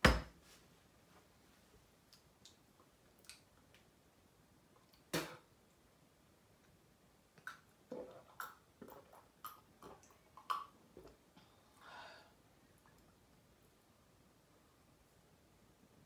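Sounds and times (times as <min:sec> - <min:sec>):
person gulping a drink: 0:07.4 - 0:11.2
breathy exhale: 0:11.7 - 0:12.4.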